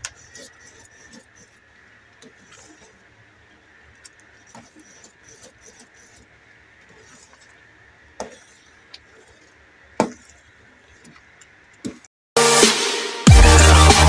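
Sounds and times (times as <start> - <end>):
loud electronic music: 12.4 - 14.0.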